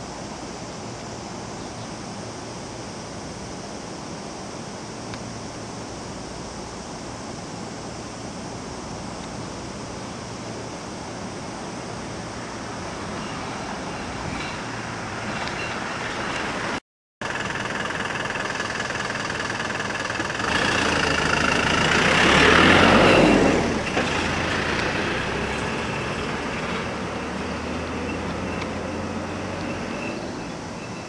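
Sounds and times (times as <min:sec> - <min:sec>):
steady mechanical noise: 0:00.0 - 0:31.0
rushing noise: 0:10.4 - 0:31.0.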